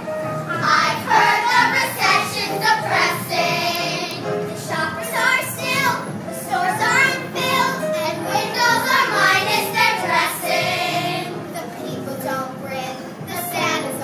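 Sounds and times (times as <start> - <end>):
children singing in chorus: 0.5 - 11.4.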